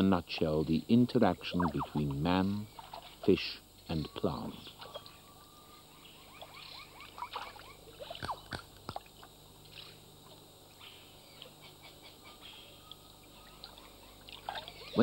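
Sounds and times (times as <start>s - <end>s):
animal chirps and whistles: 1.6s - 2.0s, 4.6s - 8.6s, 12.2s - 15.0s.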